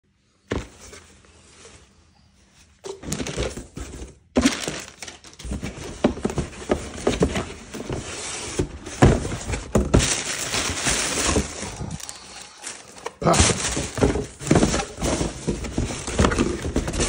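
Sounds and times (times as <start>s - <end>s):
cardboard rustling: 2.6s - 17.0s
box thump: 2.9s - 11.6s, 13.2s - 17.0s
plastic wrap and paper crinkling: 3.0s - 17.0s.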